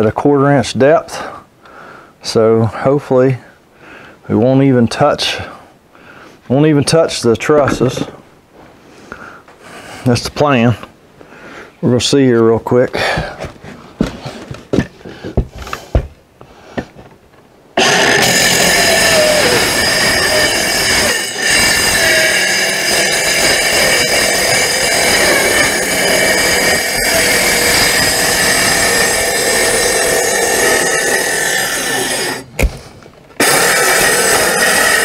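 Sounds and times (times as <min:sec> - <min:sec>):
circular saw cutting: 0:17.8 - 0:32.6, 0:33.4 - 0:35.0.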